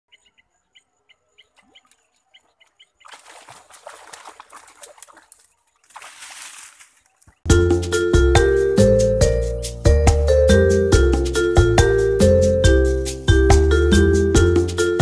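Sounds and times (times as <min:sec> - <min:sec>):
fish splashing in water: 0:02.9 - 0:07.4.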